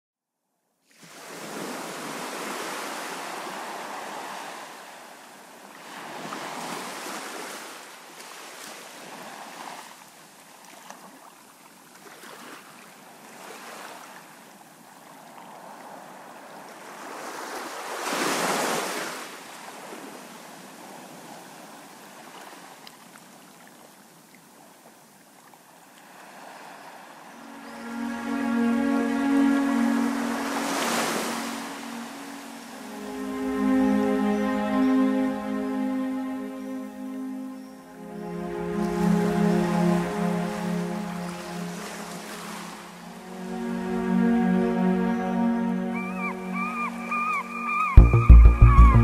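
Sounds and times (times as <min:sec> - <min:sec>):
waves breaking on sandy shore: 0:00.9 - 0:33.5, 0:38.2 - 0:43.7.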